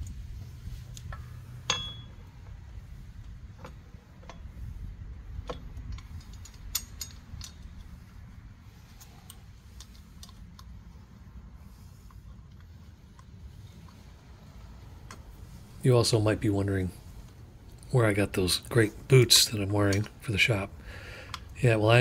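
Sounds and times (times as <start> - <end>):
low steady rumble: 0.0 - 22.0
metallic clicks and clinks: 5.5 - 7.9.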